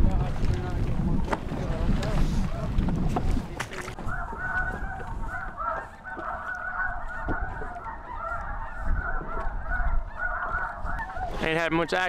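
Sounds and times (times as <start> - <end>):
geese honking chorus: 3.9 - 12.0.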